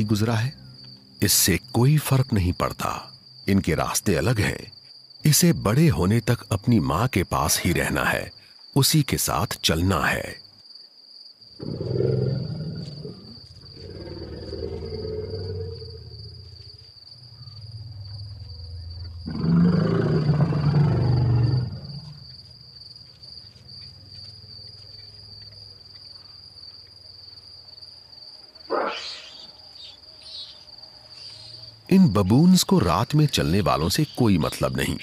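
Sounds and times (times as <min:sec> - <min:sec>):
high insect trill: 0:00.0 - 0:35.0
elephants rumbling: 0:11.6 - 0:22.4.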